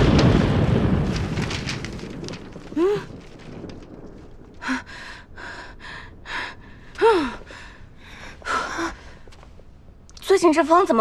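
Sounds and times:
strong gust of wind: 0:00.0 - 0:09.2
women gasping and panting: 0:04.6 - 0:09.4.

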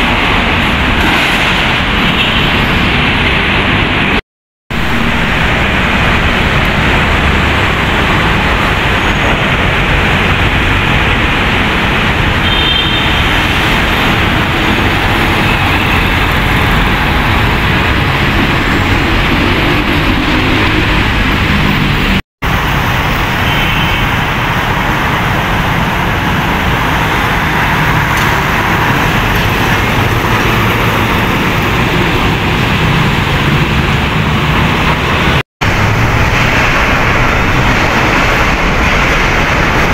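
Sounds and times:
road traffic passing: 0:00.0 - 0:39.9.

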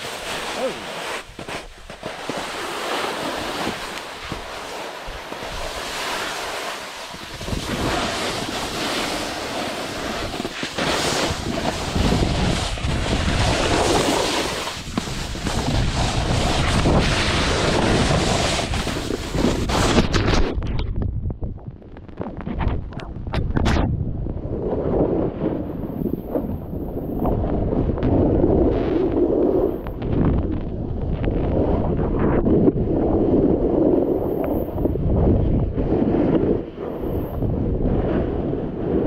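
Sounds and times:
snowboard scraping on snow: 0:00.0 - 0:20.6, 0:31.5 - 0:35.0
wind buffeting microphone: 0:00.0 - 0:39.0.

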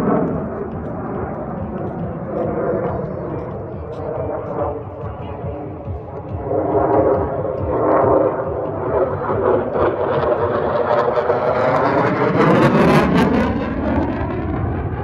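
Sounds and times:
fighter jet flying past: 0:00.0 - 0:15.0.

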